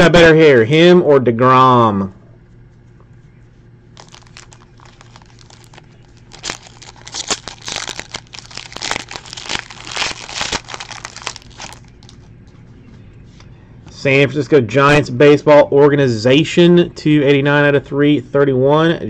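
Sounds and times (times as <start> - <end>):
foil card pack tearing: 4.0 - 12.3
wrapper crinkling: 4.0 - 12.4.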